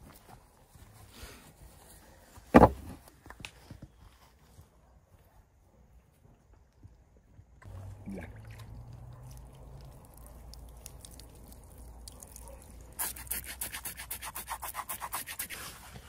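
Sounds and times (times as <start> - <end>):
water trickling onto skin: 7.8 - 13.3.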